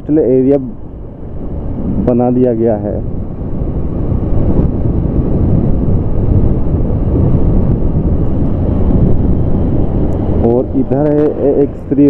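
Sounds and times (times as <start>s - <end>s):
road noise: 0.0s - 12.0s
wind buffeting microphone: 0.0s - 12.0s
motorcycle engine: 3.0s - 12.0s.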